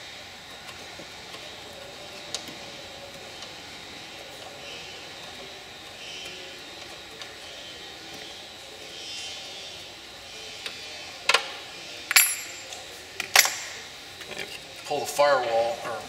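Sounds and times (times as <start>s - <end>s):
metal clinks: 12.1s - 12.7s.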